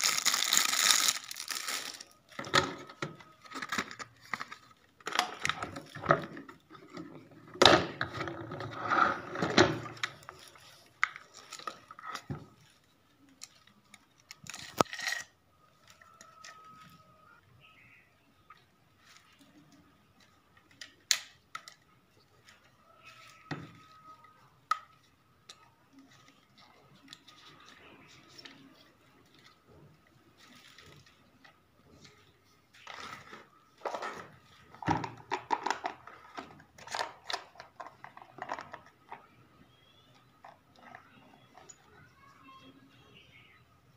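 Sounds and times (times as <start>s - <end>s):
mop parts clicking and rattling: 32.8s - 39.3s.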